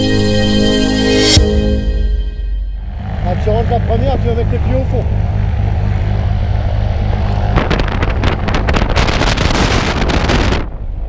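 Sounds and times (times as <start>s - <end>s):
plane engine idling: 0.0s - 11.0s
wind buffeting microphone: 5.0s - 11.0s.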